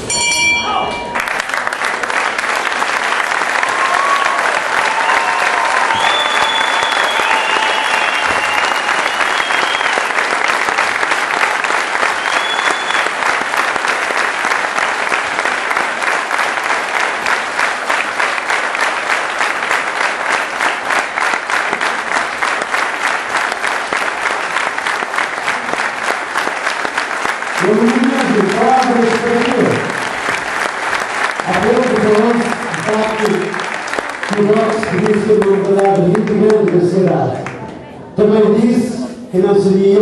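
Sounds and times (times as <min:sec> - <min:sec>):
crowd applause and cheering: 0:00.0 - 0:37.9
shrill whistles: 0:05.0 - 0:10.1, 0:12.1 - 0:13.2.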